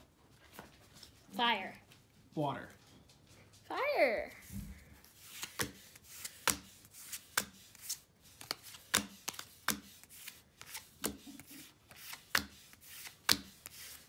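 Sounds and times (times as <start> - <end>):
cards flicked by hand: 5.3 - 14.0.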